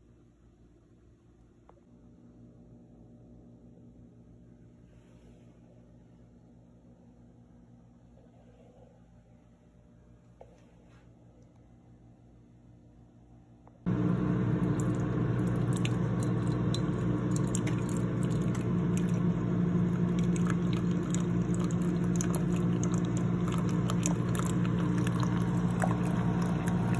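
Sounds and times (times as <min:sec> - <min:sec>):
coffee maker pump hum: 0:13.6 - 0:26.9
water crackling and sputtering: 0:14.1 - 0:26.9.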